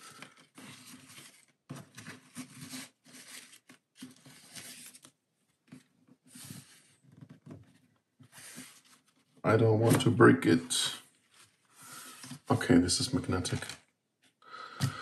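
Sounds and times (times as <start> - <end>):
rustling and handling of box: 0.0 - 10.2.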